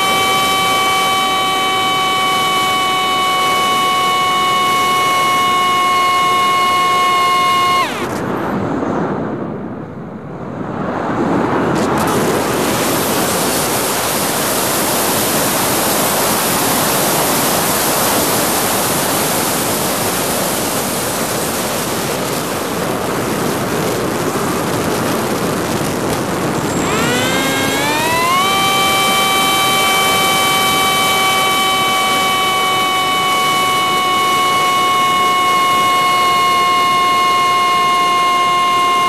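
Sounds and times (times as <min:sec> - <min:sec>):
drone motors whining: 0:00.0 - 0:08.5, 0:11.8 - 0:19.7, 0:26.5 - 0:39.0.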